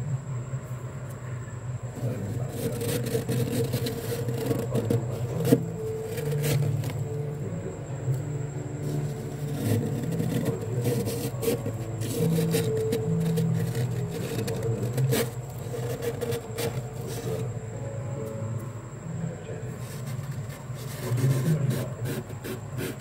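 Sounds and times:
steady low hum: 0.0s - 23.0s
fingers scraping frost: 2.1s - 7.1s, 8.8s - 17.5s, 19.8s - 23.0s.

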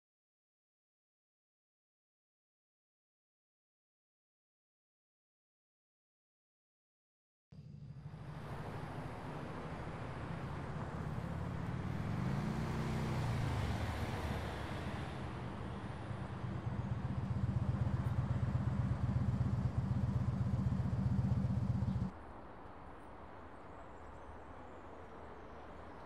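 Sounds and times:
small motorcycle engine: 11.0s - 22.1s.

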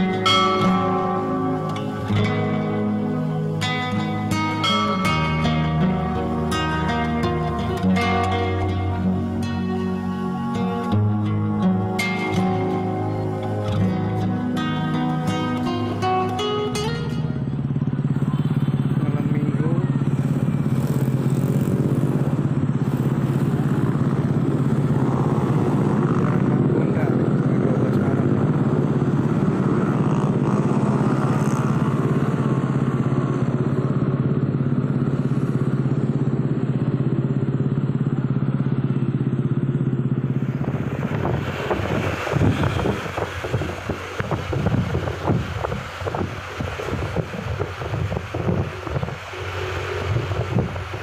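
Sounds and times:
motorcycle engines idling: 0.0s - 51.0s
wind buffeting microphone: 40.4s - 51.0s.

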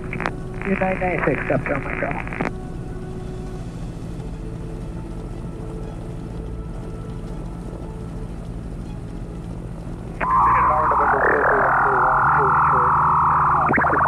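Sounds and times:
aircraft engine idling hum: 0.0s - 14.0s
loud wavering high tone: 10.2s - 14.0s.

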